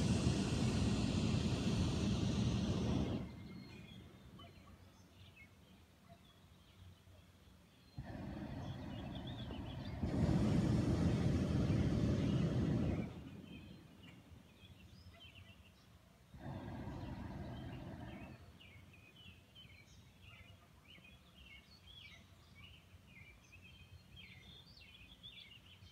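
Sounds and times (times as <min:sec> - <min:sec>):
propane burner blasts: 0:00.0 - 0:04.4, 0:08.0 - 0:14.5, 0:16.3 - 0:18.8
small birds chirping: 0:00.0 - 0:25.9.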